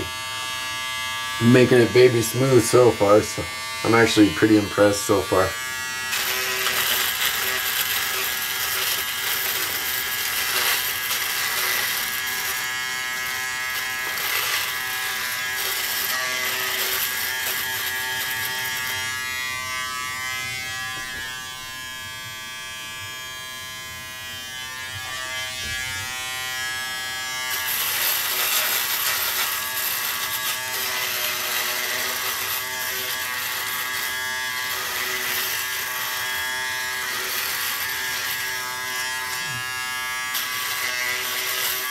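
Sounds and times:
scratchy rasp of shaving stubble: 0.0s - 21.7s, 24.4s - 41.9s
electric shaver motor buzz: 0.0s - 41.9s.

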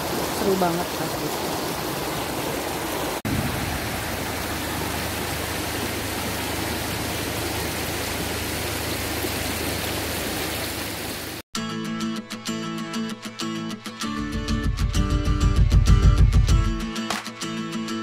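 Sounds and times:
river water rushing: 0.0s - 11.4s.

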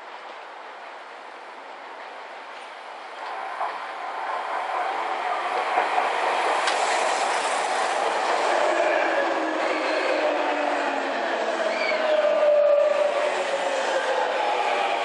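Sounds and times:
train wheels on rails: 0.1s - 15.0s.

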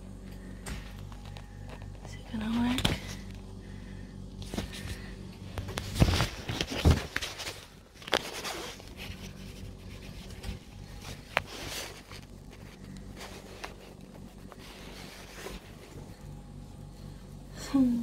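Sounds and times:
faint low hum: 0.0s - 18.0s
phone handling rustling and scraping: 4.4s - 16.1s.

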